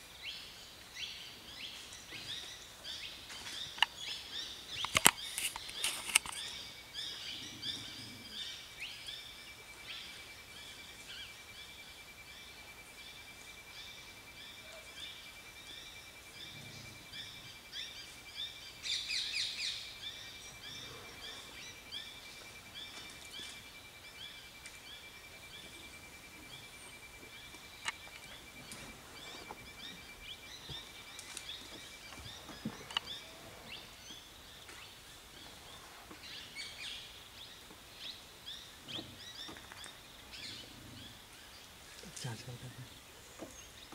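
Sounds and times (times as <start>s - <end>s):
small birds chirping: 0.1s - 43.9s.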